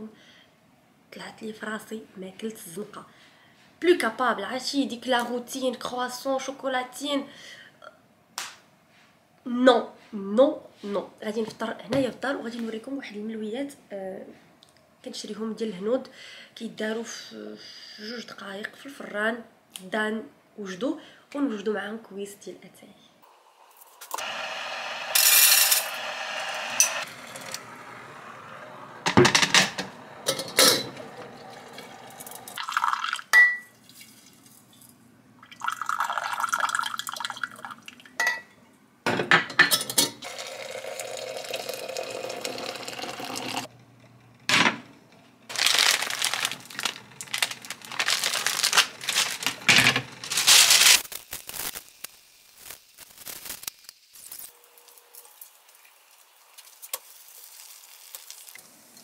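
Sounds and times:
water pouring: 0:30.3 - 0:38.1, 0:40.2 - 0:43.7, 0:45.5 - 0:49.4.

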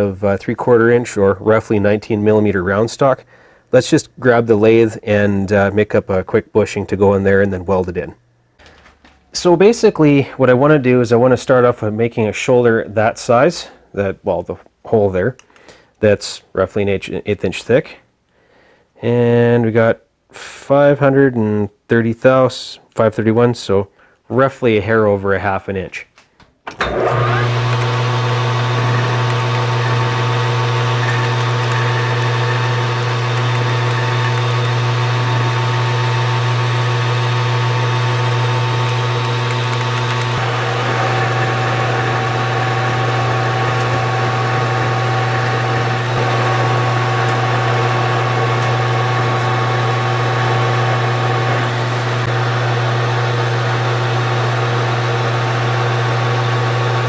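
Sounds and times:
metal lathe cutting steel: 0:26.8 - 0:57.0.

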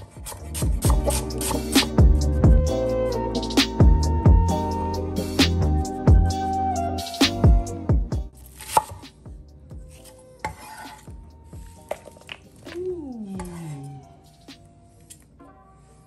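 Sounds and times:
knife scraping cutting board: 0:00.0 - 0:01.8, 0:08.4 - 0:09.0, 0:09.8 - 0:12.4.

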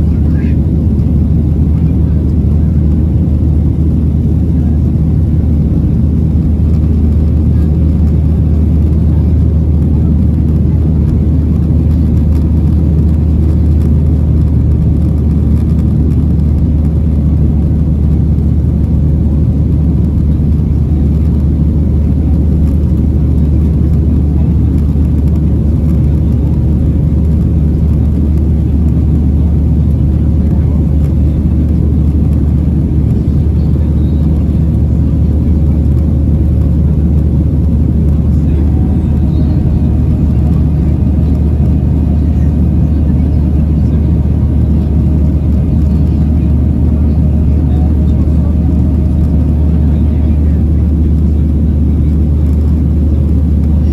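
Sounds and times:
airplane cabin engine roar: 0:00.0 - 0:53.9
faint steady hum: 0:00.0 - 0:53.9.

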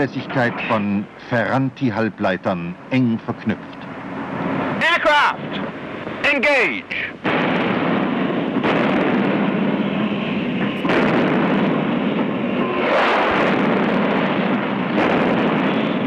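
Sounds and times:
dense continuous roar: 0:00.0 - 0:16.0
naval gun firing: 0:07.2 - 0:16.0.

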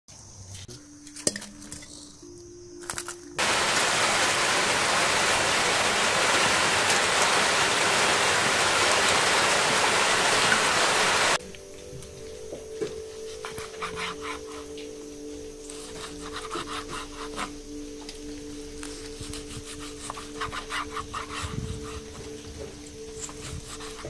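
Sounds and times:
quiet outdoor sounds: 0:00.1 - 0:24.0.

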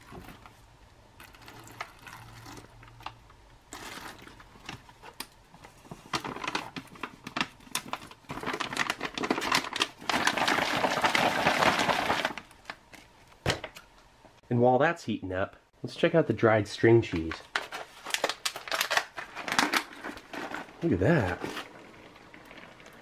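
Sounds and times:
water pouring into bag: 0:01.2 - 0:03.0
foil bag crinkling: 0:01.2 - 0:12.9, 0:17.2 - 0:23.0.

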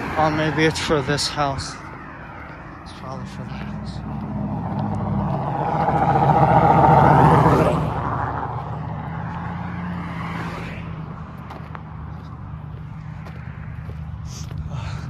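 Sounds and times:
low engine hum: 0:00.0 - 0:15.0
vehicle passing by: 0:00.0 - 0:15.0.

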